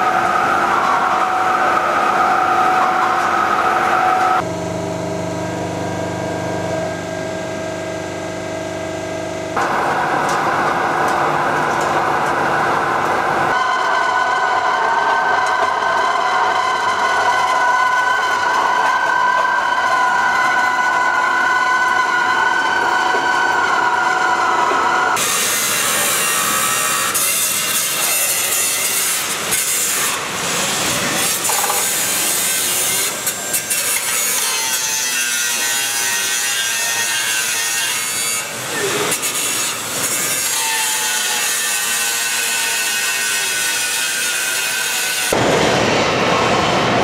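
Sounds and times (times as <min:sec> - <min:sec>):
wheel lathe machine whine: 0:00.0 - 0:47.0
angle grinders grinding steel: 0:13.5 - 0:45.4.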